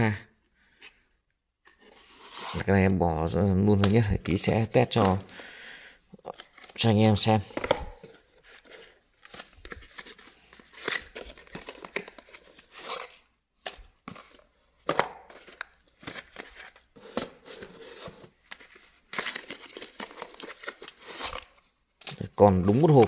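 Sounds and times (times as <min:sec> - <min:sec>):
box flap opening: 0:07.5 - 0:13.2
cardboard boxes rustling and sliding: 0:16.2 - 0:18.8.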